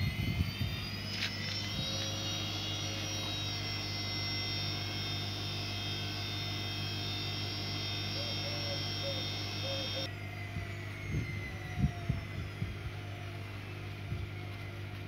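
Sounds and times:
low hum: 0:00.0 - 0:15.0
washing machine motor whine: 0:00.0 - 0:15.0.

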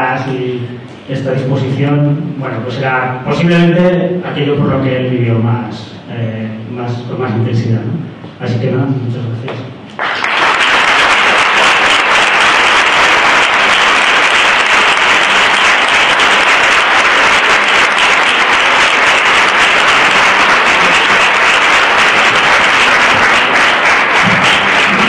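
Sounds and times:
audience applause: 0:10.0 - 0:25.0.

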